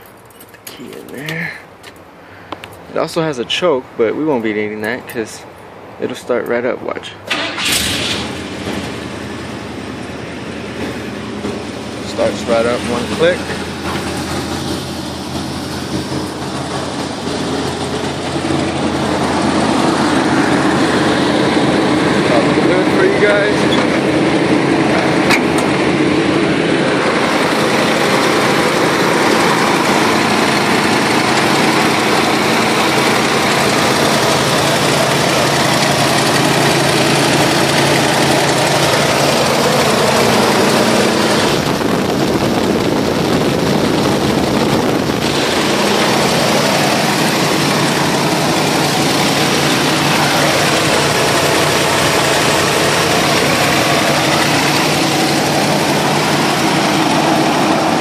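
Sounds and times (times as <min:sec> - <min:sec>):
truck engine idling: 0:00.0 - 0:58.0.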